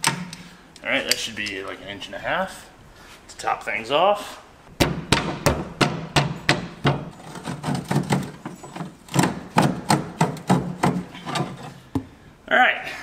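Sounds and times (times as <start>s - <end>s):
hand tools knocking on metal: 4.8s - 12.1s
scraping: 6.4s - 12.0s.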